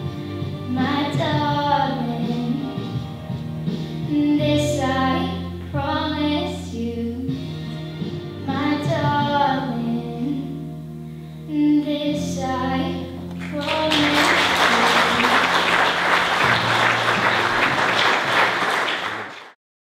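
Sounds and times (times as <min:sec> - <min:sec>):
music with singing voice: 0:00.0 - 0:16.6
audience applause: 0:13.4 - 0:19.6.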